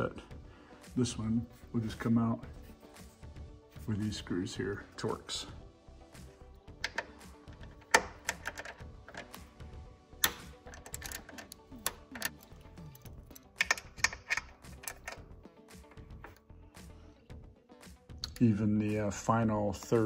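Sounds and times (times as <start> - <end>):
soft background music: 0.0 - 20.0
hand ratchet clicking: 6.8 - 9.4, 10.2 - 15.2
metal tool tapping bracket: 6.8 - 9.4, 10.2 - 12.5, 13.4 - 15.2.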